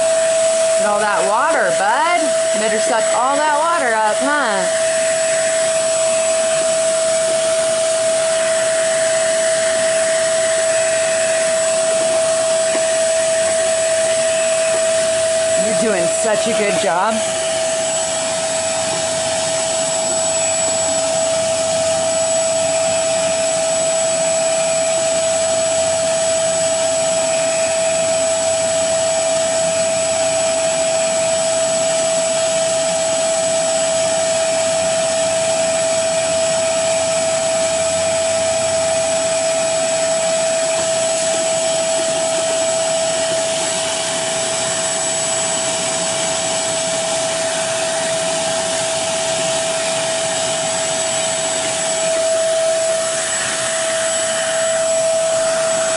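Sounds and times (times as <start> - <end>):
air rushing through hose: 0.0 - 28.4, 35.5 - 55.9
carpet shampooer motor whine: 0.0 - 55.9.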